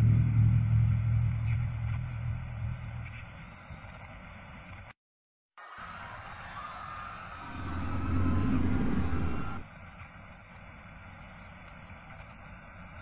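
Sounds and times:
low rumbling drone: 0.0s - 3.3s, 7.3s - 9.6s
faint higher tone: 7.4s - 9.6s.

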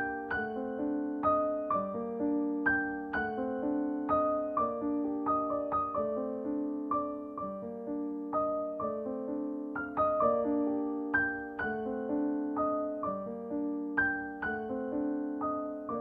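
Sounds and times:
soft piano music: 0.0s - 16.0s.

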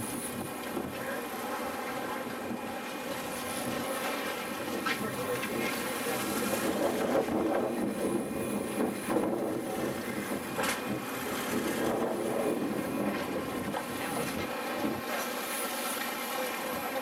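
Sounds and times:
wind on microphone: 0.0s - 1.1s, 4.6s - 15.1s
boat engine running: 0.0s - 17.0s.

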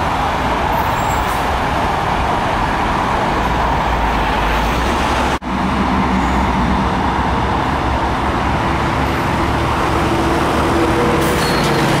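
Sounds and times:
freeway traffic rushing: 0.0s - 12.0s.

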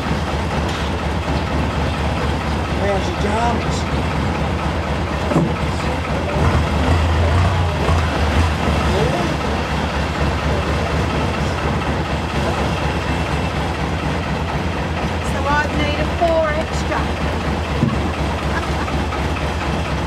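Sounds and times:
boat engine droning: 0.0s - 20.0s.

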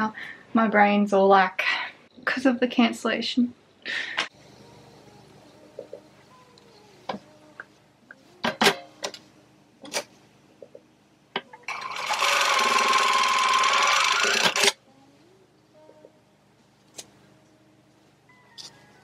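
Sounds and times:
sewing machine running: 11.7s - 14.8s.

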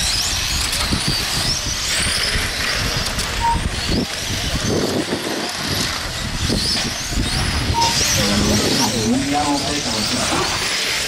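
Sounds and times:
rc car motors whining: 0.0s - 11.0s
short beep: 3.4s - 3.7s.

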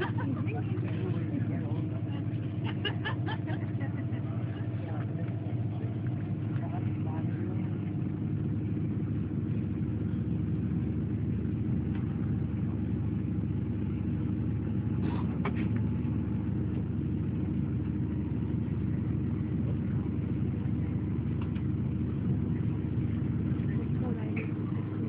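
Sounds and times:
train rumble from inside carriage: 0.0s - 8.2s.

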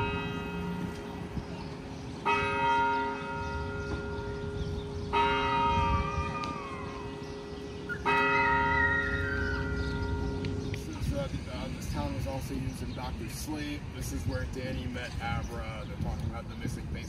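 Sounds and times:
large bell tolling: 0.0s - 12.2s.

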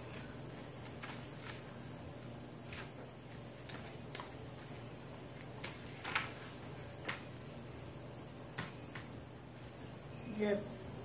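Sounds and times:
book pages rustling: 0.0s - 7.3s
faint hum: 0.0s - 11.0s.

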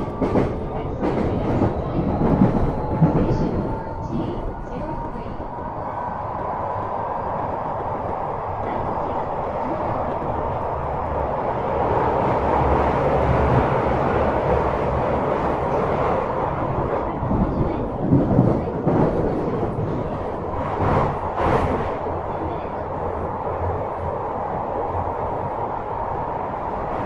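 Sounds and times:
train wheels rumbling on rail: 0.0s - 27.0s.

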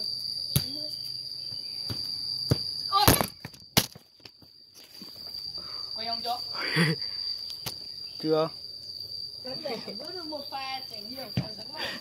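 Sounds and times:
high insect drone: 0.0s - 12.0s
football kicked on concrete: 0.5s - 0.8s, 1.8s - 4.4s, 11.4s - 11.6s.

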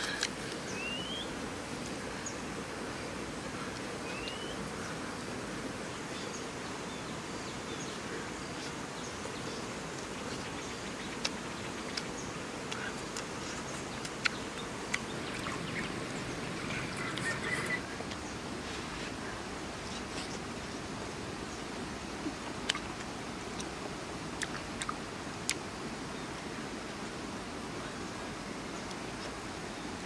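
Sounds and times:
insects buzzing: 0.0s - 18.5s
outdoor ambient hiss: 0.0s - 30.0s.

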